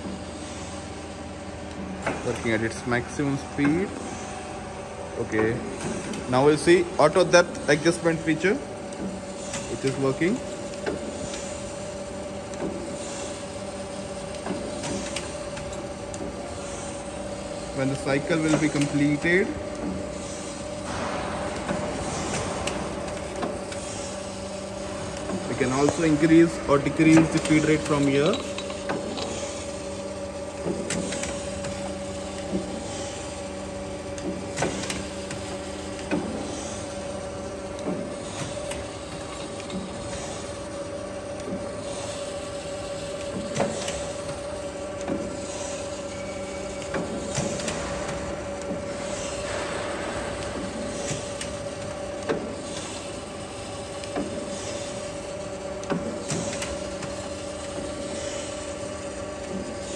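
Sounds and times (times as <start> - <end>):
grinder machine hum: 12.5 - 55.8.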